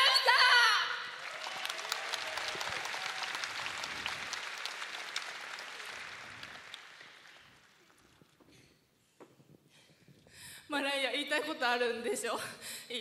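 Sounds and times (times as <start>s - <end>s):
crowd applauding: 1.1s - 8.4s.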